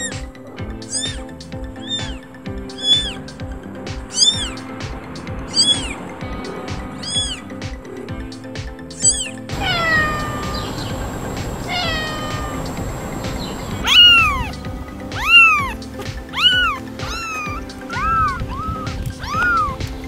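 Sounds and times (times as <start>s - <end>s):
cat meowing: 0.8s - 3.2s, 4.1s - 4.6s, 5.5s - 6.0s, 7.0s - 7.4s, 9.0s - 12.9s, 13.7s - 14.6s, 15.2s - 19.8s
high-pitched kitten mews: 0.9s - 2.2s, 2.8s - 3.2s, 4.1s - 4.6s, 7.0s - 7.4s, 9.0s - 10.7s, 11.7s - 12.7s, 13.8s - 14.5s, 15.2s - 19.8s.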